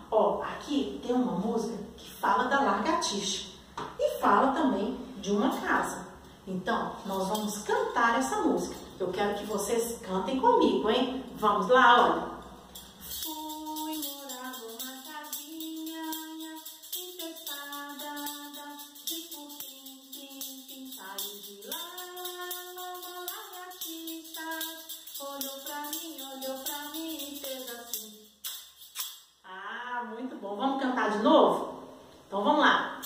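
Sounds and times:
jingling tambourine-like beat: 0:12.7 - 0:29.4
woman singing: 0:13.2 - 0:28.2.

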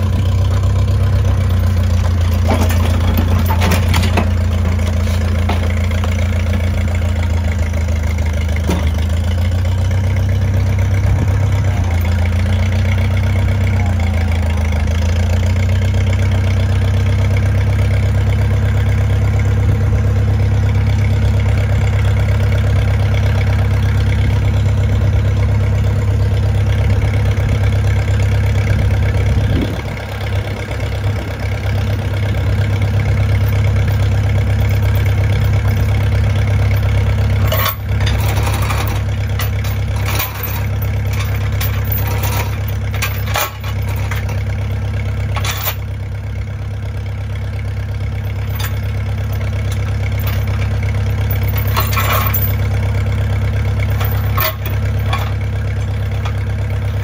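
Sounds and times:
tractor engine idling: 0:00.0 - 0:57.0
sharp metal clanks: 0:36.7 - 0:44.5, 0:45.3 - 0:45.9, 0:51.3 - 0:52.7, 0:53.9 - 0:56.4.

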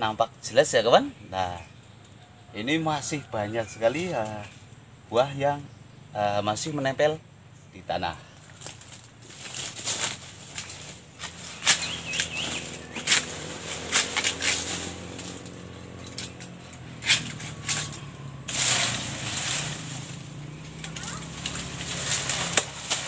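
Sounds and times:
dry leaves crackling and snapping: 0:08.3 - 0:23.0.

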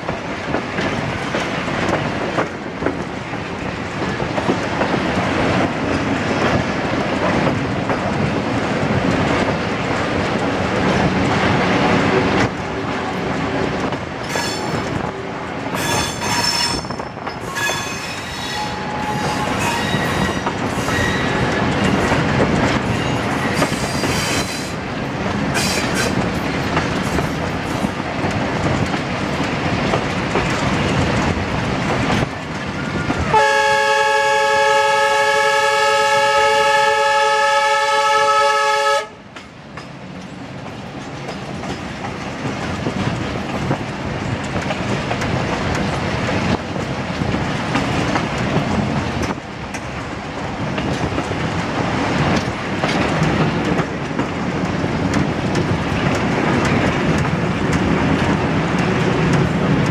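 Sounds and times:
train rail running noise: 0:00.0 - 0:59.9
locomotive horn chord: 0:33.3 - 0:39.2.

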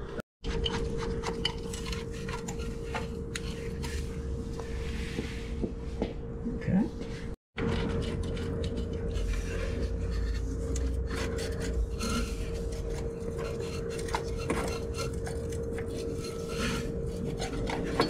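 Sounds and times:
metal parts scraping and clinking: 0:00.5 - 0:04.1, 0:07.6 - 0:18.0.

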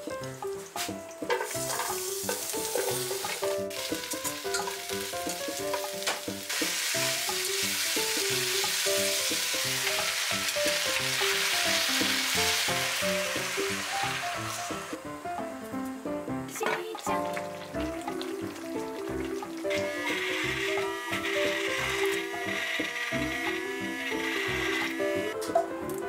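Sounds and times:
vegetables sizzling in hot oil: 0:00.8 - 0:15.2, 0:17.0 - 0:25.4.

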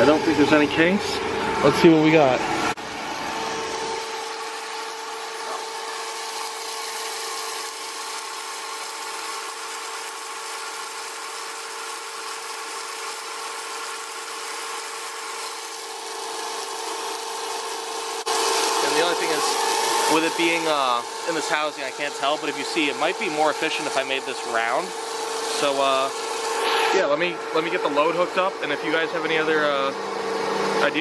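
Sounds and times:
turbine whine: 0:00.0 - 0:09.0, 0:15.2 - 0:31.0
water jet hissing: 0:04.2 - 0:28.0.

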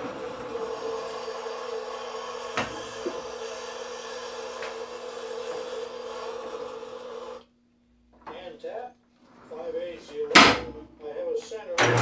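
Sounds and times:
lathe motor humming: 0:00.0 - 0:07.4.

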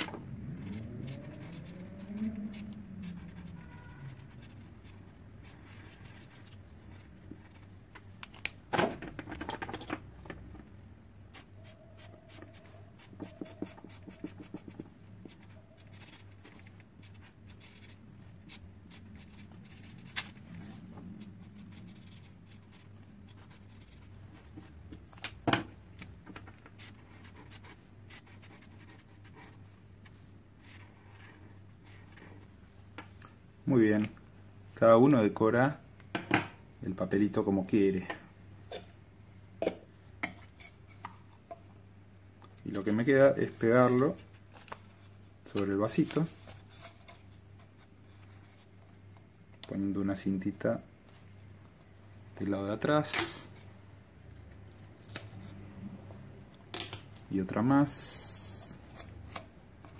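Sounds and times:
markers scratching on paper: 0:00.5 - 0:07.7, 0:11.3 - 0:24.8, 0:26.7 - 0:32.5.

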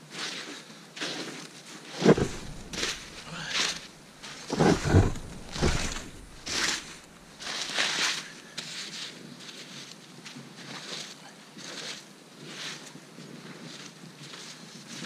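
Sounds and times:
hands scooping snow: 0:01.9 - 0:08.0
dull thumps: 0:02.0 - 0:07.4.

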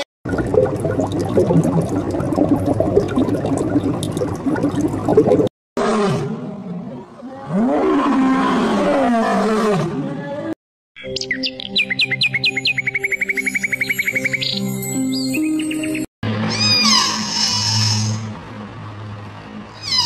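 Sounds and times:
dense crackling bubbling noise: 0:00.3 - 0:05.5
lion roaring: 0:05.8 - 0:10.1.

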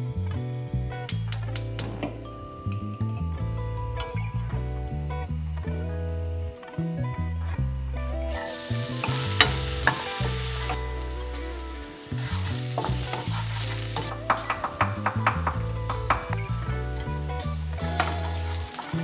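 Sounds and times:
onion sizzling in hot oil: 0:08.3 - 0:19.0.

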